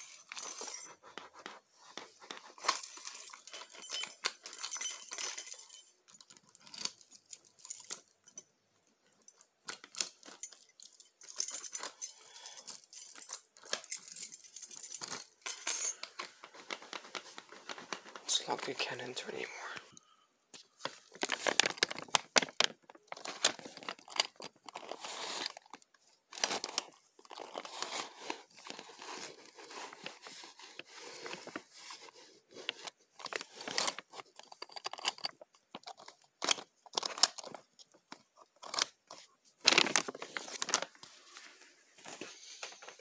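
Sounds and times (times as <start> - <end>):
cardboard and tape rustling: 16.0 - 19.8, 20.6 - 43.0.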